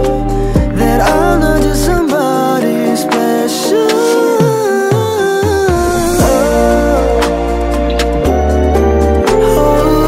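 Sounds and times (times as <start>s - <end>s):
pop ballad music: 0.0s - 10.0s.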